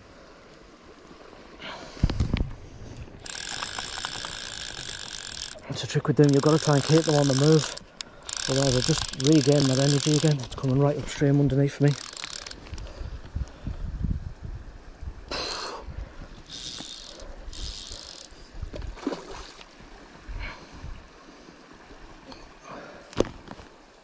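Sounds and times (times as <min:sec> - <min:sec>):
wind rumbling on microphone: 0:01.8 - 0:07.7, 0:12.4 - 0:19.0
microphone handling noise: 0:02.0 - 0:03.2
fly line hissing rasps: 0:03.2 - 0:10.5, 0:16.4 - 0:18.4.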